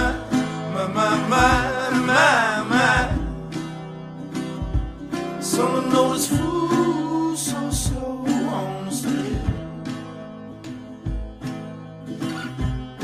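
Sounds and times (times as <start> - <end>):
man singing: 0.0 - 3.6, 5.4 - 10.0
acoustic guitar: 0.0 - 13.0.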